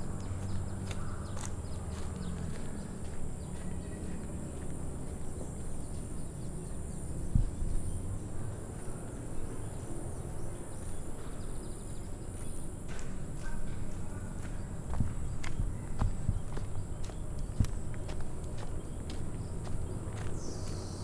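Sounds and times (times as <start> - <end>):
low rumble: 0.0 - 20.8.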